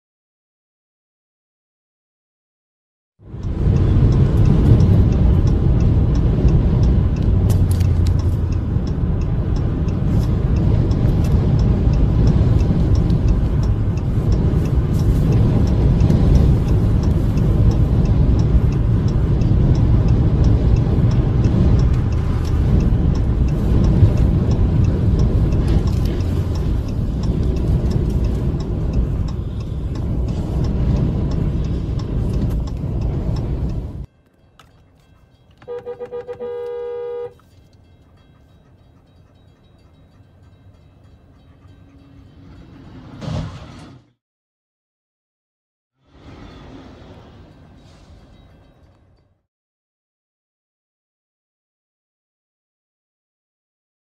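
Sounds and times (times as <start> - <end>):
wind buffeting car: 3.2 - 34.1
highway road noise: 3.2 - 44.2, 46.0 - 49.4.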